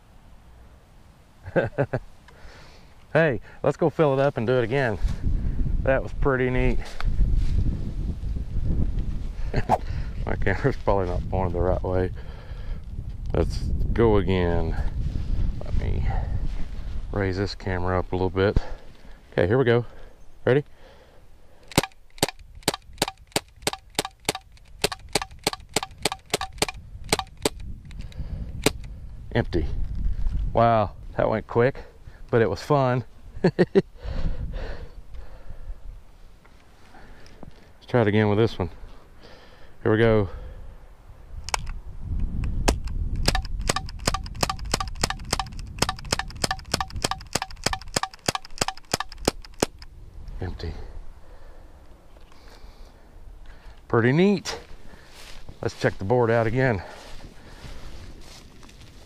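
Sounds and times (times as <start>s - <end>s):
bb pistol shots with metallic ring: 21.7s - 27.6s, 42.7s - 49.8s.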